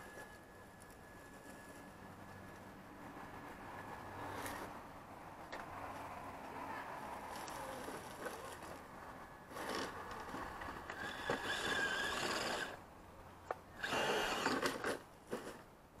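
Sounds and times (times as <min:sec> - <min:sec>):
rc truck motor whining: 0:09.5 - 0:12.8, 0:13.7 - 0:15.4.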